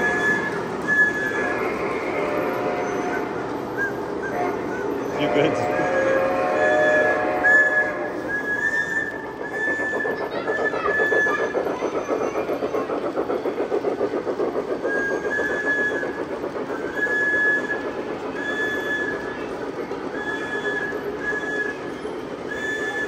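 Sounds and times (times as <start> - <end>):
model train clattering on track: 8.3 - 23.0.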